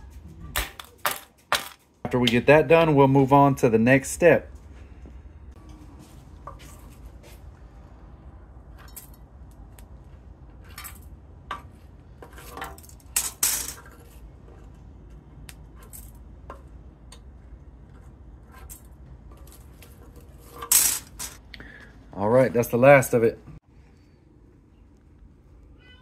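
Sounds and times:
metal tools scraping chips: 0:18.5 - 0:21.4.

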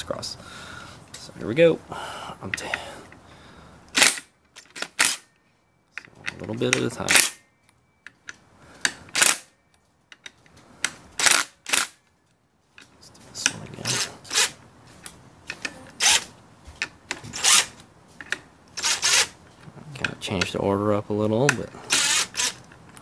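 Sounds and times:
impact driver bursts: 0:03.9 - 0:05.3, 0:08.8 - 0:09.5, 0:18.8 - 0:19.4, 0:21.8 - 0:22.6.

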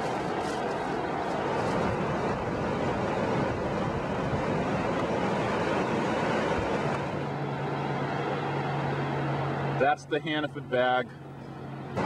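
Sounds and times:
surf washing on a beach: 0:00.0 - 0:07.3.

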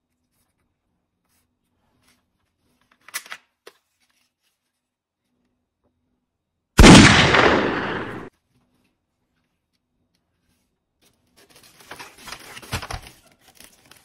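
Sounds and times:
toy gun firing bang: 0:06.8 - 0:08.3.

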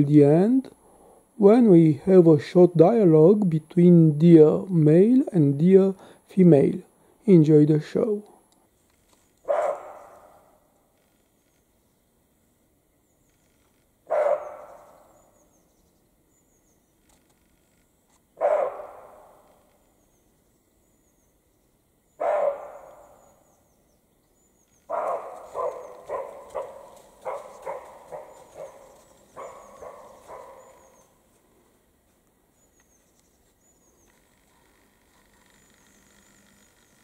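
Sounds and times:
deer barking: 0:09.4 - 0:10.7, 0:14.0 - 0:15.3, 0:18.4 - 0:19.7, 0:22.2 - 0:23.4, 0:24.9 - 0:31.2.

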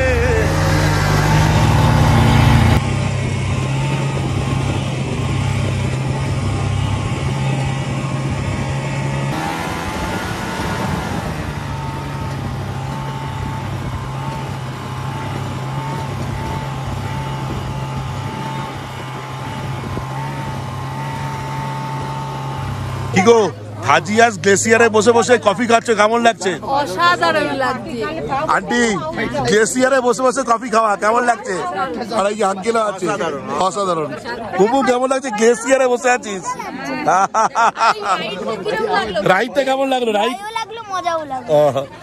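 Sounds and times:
snowmobile engine droning: 0:00.0 - 0:27.5.

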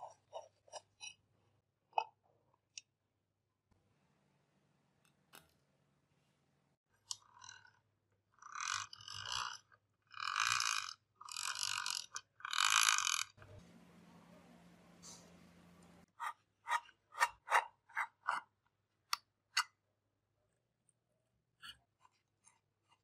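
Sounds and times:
hand drill gears grinding: 0:10.2 - 0:13.4
faint low hum: 0:13.4 - 0:16.1.

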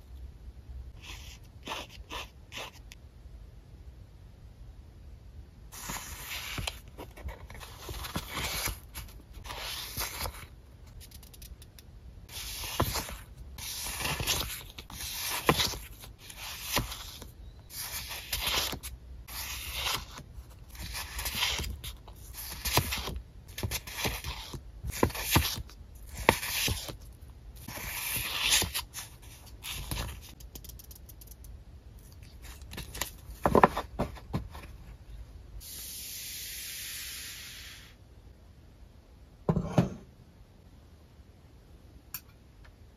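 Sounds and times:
paper sheets rustling and crinkling: 0:32.4 - 0:34.8.

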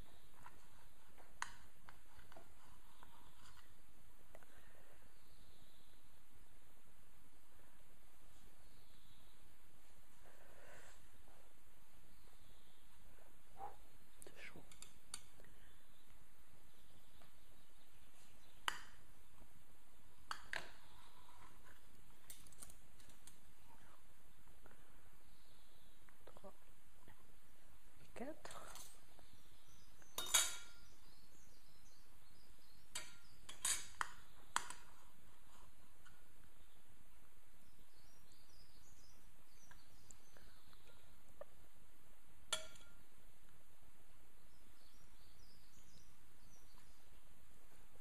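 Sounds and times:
knife and fork clinking on plate: 0:30.2 - 0:30.8.

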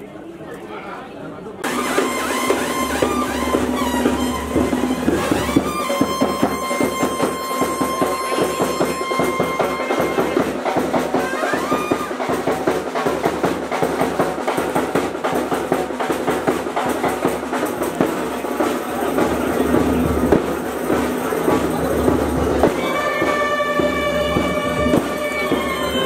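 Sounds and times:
brass band music: 0:01.6 - 0:13.5, 0:18.9 - 0:26.0
fast drumming: 0:01.6 - 0:26.0.

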